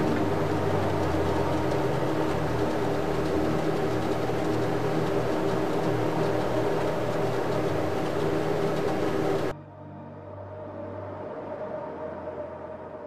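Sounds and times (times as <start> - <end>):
cd drive whirring: 0.0 - 9.5.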